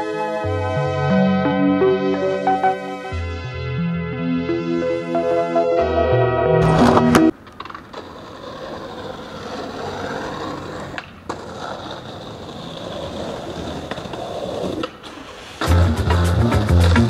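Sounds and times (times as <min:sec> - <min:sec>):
skateboard grinding on concrete ledge: 0:06.6 - 0:17.0
skateboard wheels rolling on pavement: 0:06.6 - 0:17.0
skateboard pop: 0:13.8 - 0:17.0.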